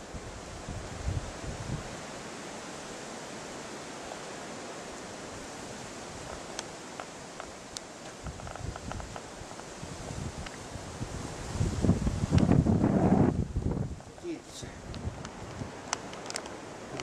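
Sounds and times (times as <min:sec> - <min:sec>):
wind on microphone: 0:00.0 - 0:02.3, 0:05.2 - 0:17.0
faint sharp clicks: 0:06.3 - 0:09.7, 0:14.9 - 0:17.0.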